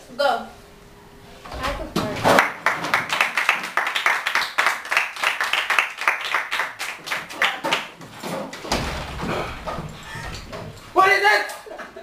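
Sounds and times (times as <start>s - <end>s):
people clapping: 2.0s - 8.0s.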